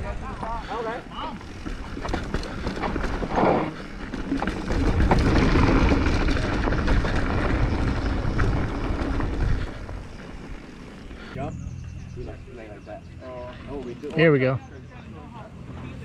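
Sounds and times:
bike tyre rumble on dirt: 0.0s - 11.4s
bike rattling clicks: 1.5s - 10.8s.

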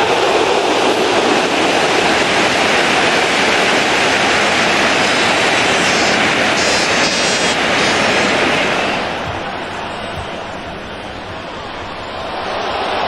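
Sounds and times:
stadium crowd din: 5.9s - 13.0s.

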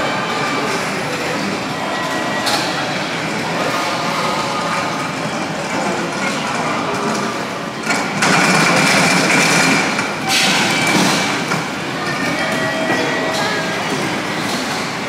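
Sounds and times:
train running: 0.0s - 15.0s.

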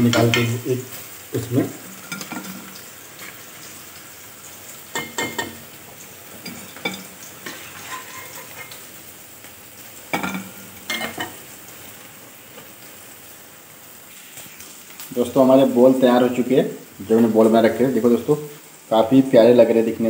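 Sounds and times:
oil sizzling from deep-frying: 0.0s - 20.0s
utensil clinking against pan: 5.0s - 5.6s, 6.4s - 8.8s.

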